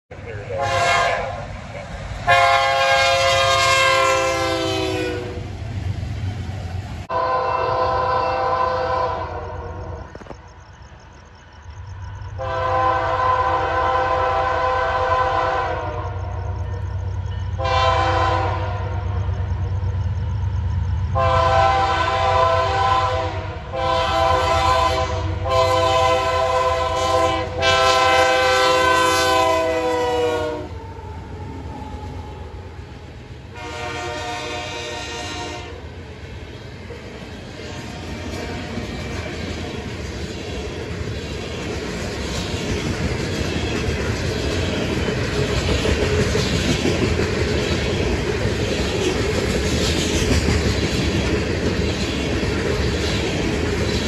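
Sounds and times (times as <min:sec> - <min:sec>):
locomotive engines droning: 0:00.1 - 0:54.0
locomotive horn blasts: 0:00.5 - 0:01.4, 0:02.2 - 0:05.4, 0:07.1 - 0:09.6, 0:12.4 - 0:16.2, 0:17.6 - 0:19.0, 0:21.2 - 0:30.7, 0:33.5 - 0:35.8.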